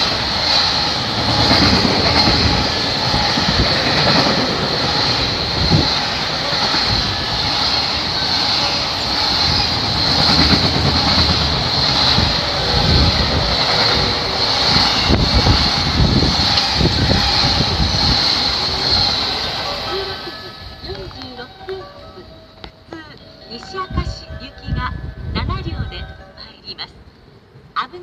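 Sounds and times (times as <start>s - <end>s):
train wheels rumbling on rail: 0.0s - 22.0s.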